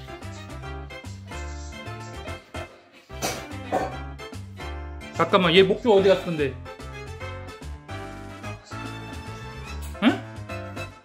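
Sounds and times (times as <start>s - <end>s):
instrumental music with bass line: 3.2s - 11.0s.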